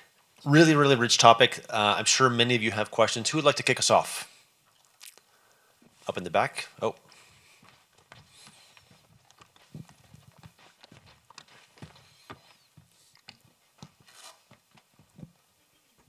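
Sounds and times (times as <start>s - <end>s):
faint footsteps: 4.6s - 6.2s, 6.8s - 16.0s.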